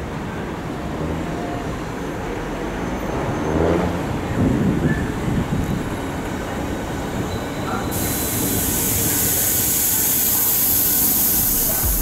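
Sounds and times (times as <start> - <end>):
train wheels rumbling: 4.0 - 12.0
steady high hiss: 7.9 - 12.0.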